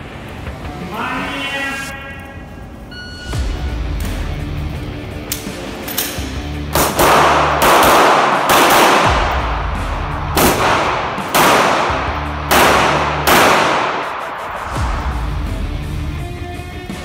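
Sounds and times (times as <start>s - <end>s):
background music with bass: 3.2s - 17.0s
handgun shots echoing indoors: 5.2s - 9.4s, 10.3s - 14.6s.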